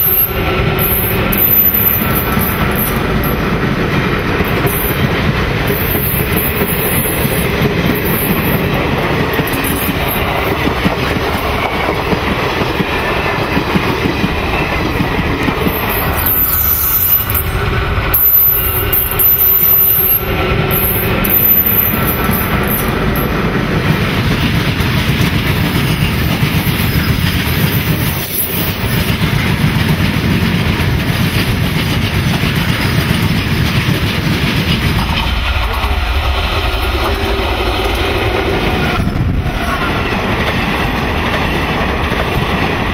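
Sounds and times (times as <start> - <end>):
high wheel squeal: 0.0 - 3.4, 15.6 - 23.0
freight train rumbling past: 0.0 - 42.9
wheels clacking over rail joints: 0.0 - 42.9.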